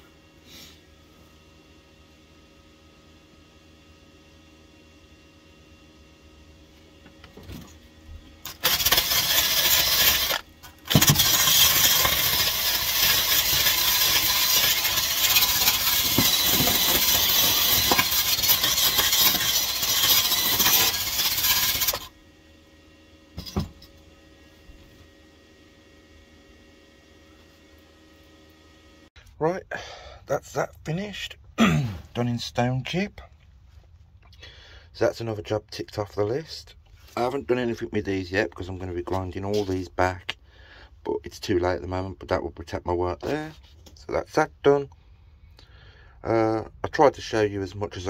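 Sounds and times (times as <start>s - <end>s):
wire wheel grinding metal: 8.4s - 22.1s.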